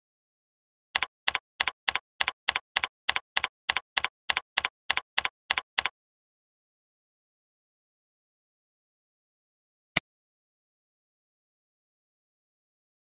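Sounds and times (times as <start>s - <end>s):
keyboard typing: 1.0s - 5.9s.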